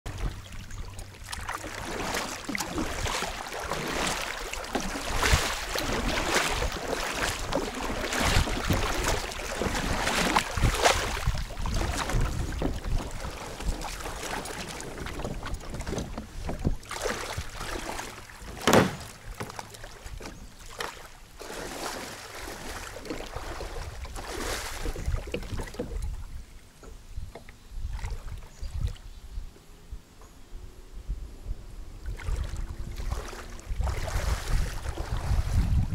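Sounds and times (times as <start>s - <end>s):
wind rumble on microphone: 0.1s - 18.3s, 21.7s - 35.9s
water splashing around kayak: 0.1s - 29.2s, 31.9s - 35.9s
sharp splash or knock: 1.3s - 22.1s.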